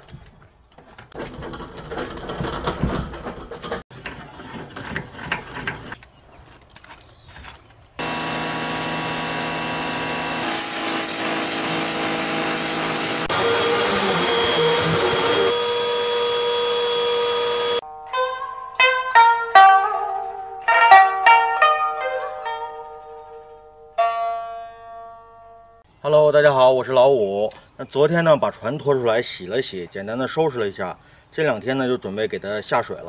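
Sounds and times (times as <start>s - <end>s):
boat cover clatter and rustling: 0.0s - 8.0s
pressure washer spraying: 8.0s - 17.8s
shop vacuum running: 8.0s - 17.8s
plucked-string music: 17.8s - 25.8s.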